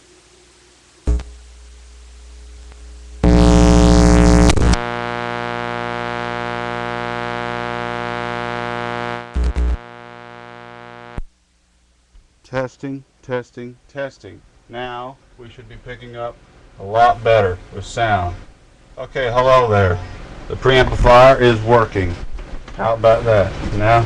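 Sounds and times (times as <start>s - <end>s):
electrical hum and buzz: 0.0s - 12.5s
sharp electrical pop: 1.0s - 1.8s, 2.6s - 11.3s
crackling pops: 1.0s - 11.4s.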